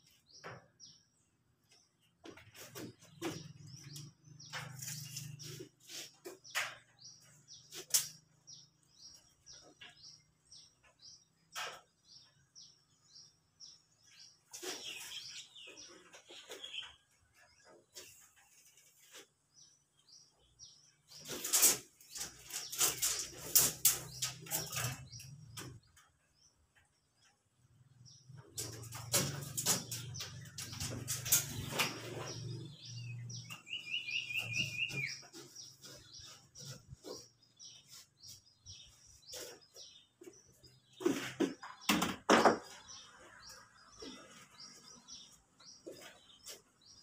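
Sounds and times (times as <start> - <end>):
small birds chirping: 0.0 - 47.0
clatter and knocks: 28.3 - 33.5, 39.3 - 43.0.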